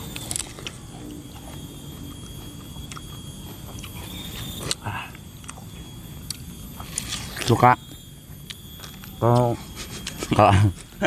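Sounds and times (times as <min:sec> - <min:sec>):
watermelon being bitten and chewed: 0:00.0 - 0:04.8.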